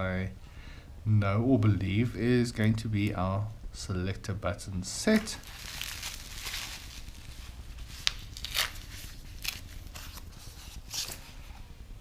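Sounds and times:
packing material rustling: 5.0s - 11.6s.

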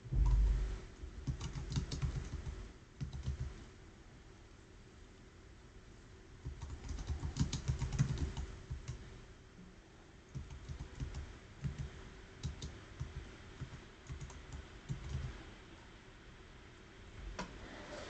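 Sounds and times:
typing on computer keyboard: 1.2s - 3.6s, 6.4s - 9.0s, 10.3s - 15.4s.

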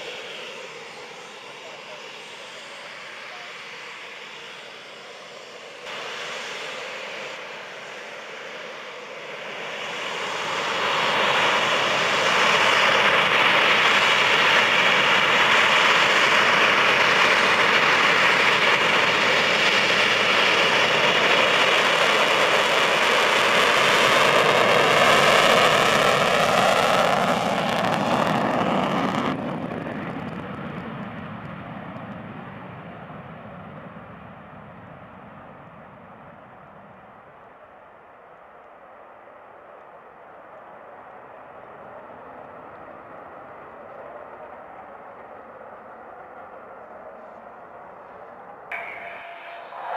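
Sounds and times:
high jet whine: 0.0s - 37.5s, 42.7s - 49.9s
jet engine roar: 0.0s - 49.9s.

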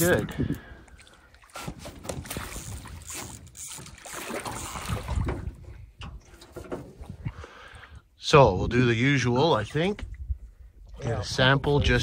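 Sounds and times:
wind on microphone: 0.0s - 1.0s, 1.6s - 3.4s, 4.6s - 8.8s, 10.0s - 12.0s
water splashing around a net: 1.4s - 5.5s.

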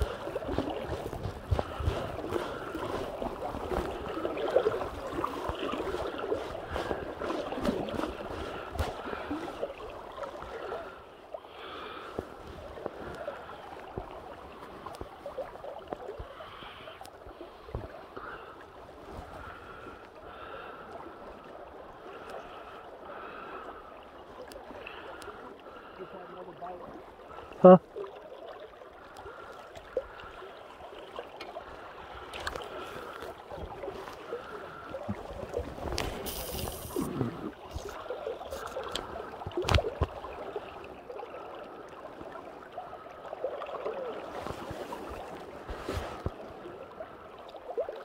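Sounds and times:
river water rushing around boat: 0.0s - 16.2s.

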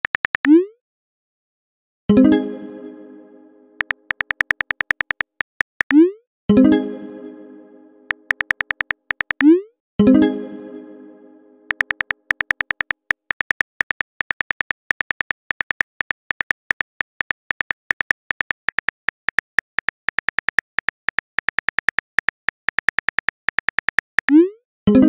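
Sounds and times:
phone keyboard typing clicks: 0.0s - 0.6s, 3.8s - 6.0s, 8.1s - 9.6s, 11.7s - 24.4s.

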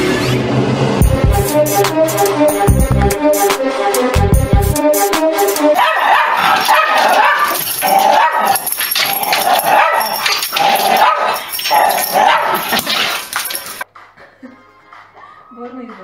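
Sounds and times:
small dogs barking: 5.8s - 13.8s.

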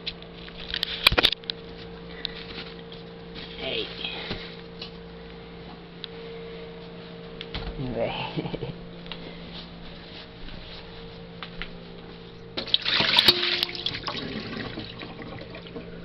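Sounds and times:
water splashing into metal sink: 12.6s - 15.8s.

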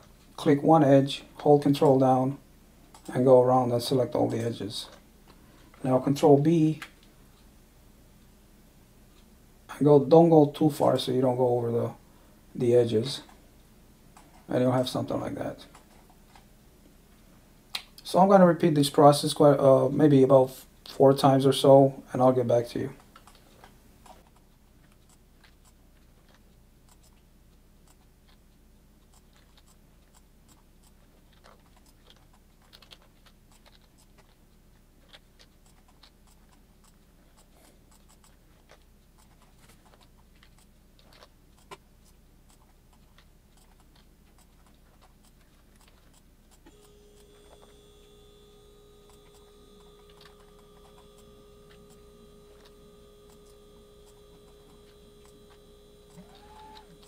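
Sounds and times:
faint steady tone: 46.6s - 57.0s.

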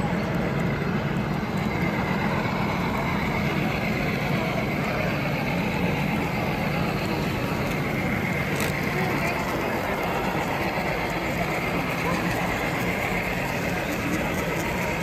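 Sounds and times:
model diesel locomotive rumble: 0.0s - 15.0s.

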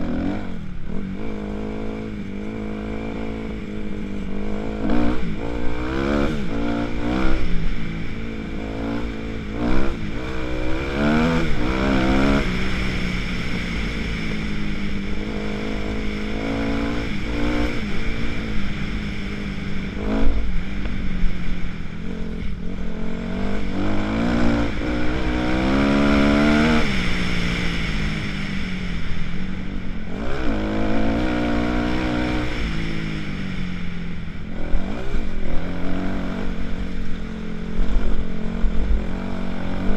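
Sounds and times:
dirt bike engine revving: 0.0s - 13.8s, 22.7s - 28.0s.

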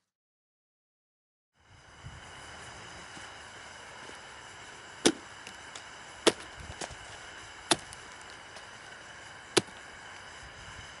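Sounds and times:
tomahawk chopping into pumpkin: 5.0s - 5.2s, 7.7s - 8.0s.

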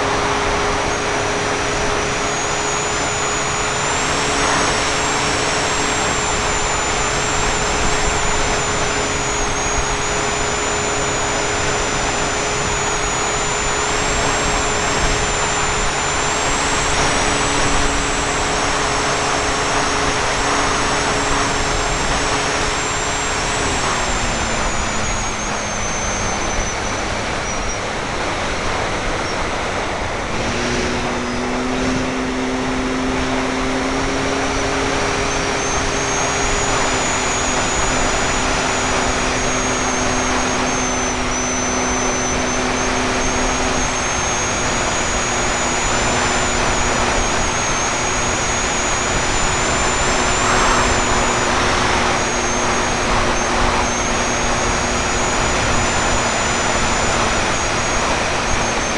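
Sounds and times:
rc plane motor whining: 0.0s - 58.9s
wind rushing over microphone: 0.0s - 58.9s.

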